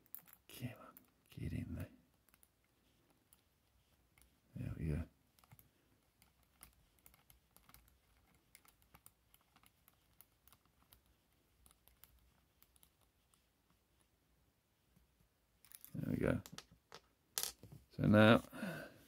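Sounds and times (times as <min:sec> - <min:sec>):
small metal parts clicking: 0:00.0 - 0:00.4.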